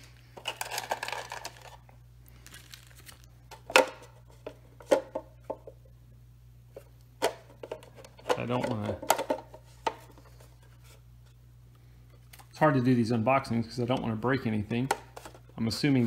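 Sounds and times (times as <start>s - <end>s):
packaging rustling and crinkling: 0.0s - 3.4s.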